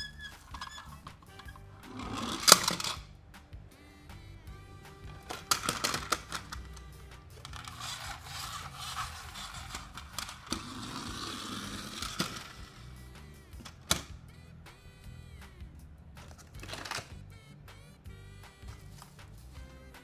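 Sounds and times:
rustling scraping: 0.0 - 3.0, 5.0 - 13.0
background music: 0.0 - 20.0
toy cars clicking and clattering: 0.1 - 3.1, 5.1 - 13.0, 13.6 - 14.1, 16.2 - 17.2.

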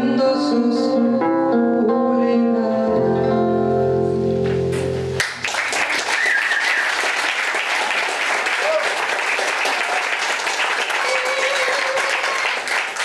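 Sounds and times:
classical guitar: 0.0 - 5.2
audience applause: 5.2 - 13.0.

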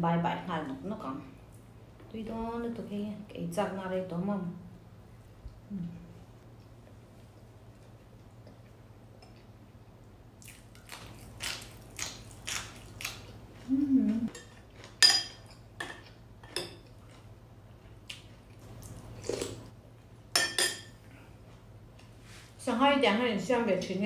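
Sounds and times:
low voice-like hum: 5.6 - 6.3, 13.6 - 14.3
cutlery clinking on ceramic plate: 14.3 - 16.8, 20.4 - 20.9.

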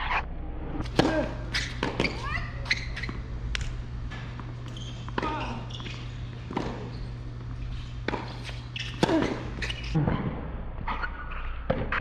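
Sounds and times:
tennis ball knocks: 6.4 - 9.6.

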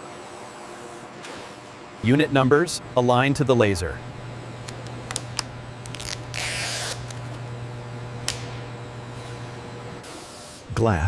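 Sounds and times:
steady low hum: 0.7 - 10.1
tape peeling rustle: 4.6 - 7.4.

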